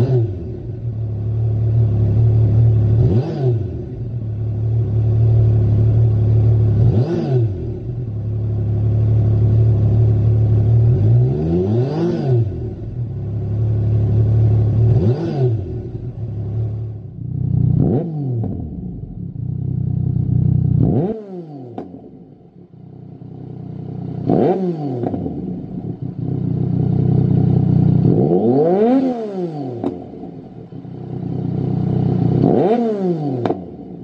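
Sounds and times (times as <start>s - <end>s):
motorcycle engine idling and revving: 0.0s - 34.0s.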